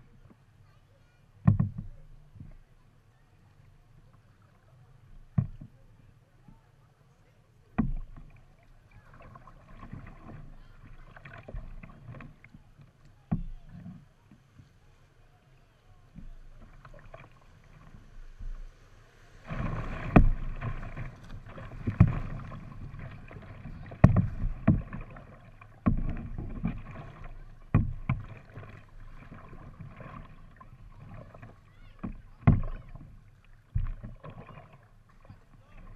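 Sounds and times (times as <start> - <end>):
water rushing along kayak hull: 0.0 - 35.9
thumps and knocks in boat: 1.4 - 2.6, 5.1 - 5.8, 7.8 - 8.4, 13.3 - 14.7, 19.4 - 35.9.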